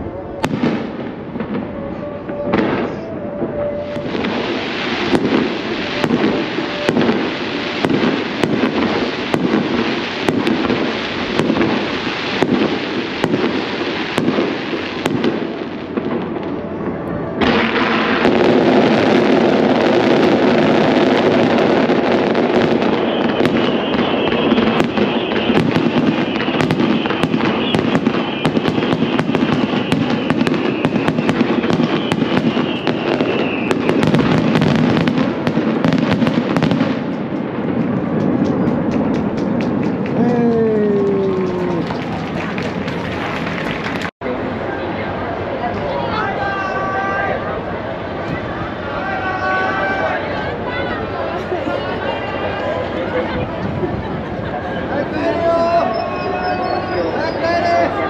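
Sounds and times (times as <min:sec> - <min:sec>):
crackling firework barrage: 0:00.0 - 0:45.5
firework shells bursting: 0:04.0 - 0:16.4, 0:17.4 - 0:44.1.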